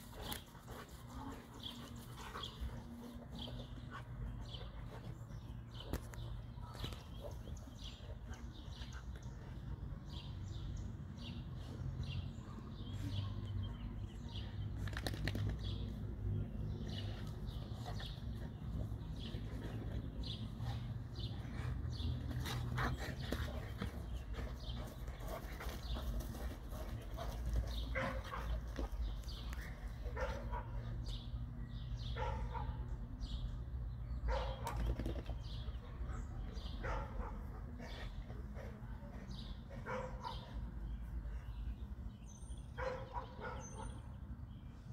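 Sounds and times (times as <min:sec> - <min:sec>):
small birds chirping: 0:00.0 - 0:44.9
dogs barking: 0:30.1 - 0:30.9, 0:32.1 - 0:32.9, 0:34.3 - 0:34.8, 0:36.2 - 0:37.9, 0:39.8 - 0:40.6, 0:42.8 - 0:44.1.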